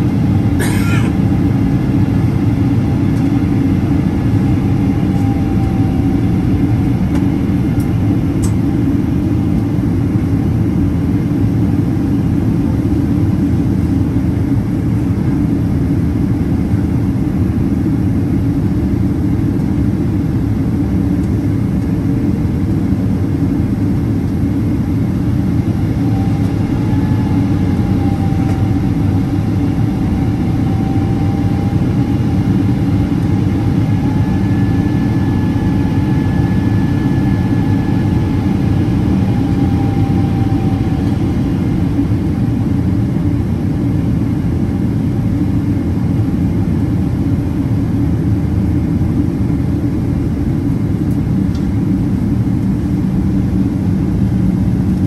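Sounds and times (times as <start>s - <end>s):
jet engine drone: 0.0s - 55.0s
faint wavering whine: 21.2s - 46.5s.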